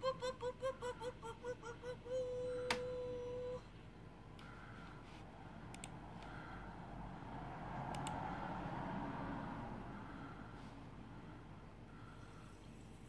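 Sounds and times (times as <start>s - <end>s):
faint room noise: 0.0s - 13.0s
computer mouse clicking: 5.7s - 6.3s, 7.9s - 8.2s.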